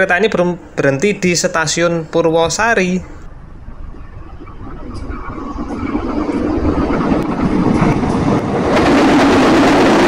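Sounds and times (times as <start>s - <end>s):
train rail noise: 0.4s - 10.0s
locomotive engine drone: 3.0s - 10.0s.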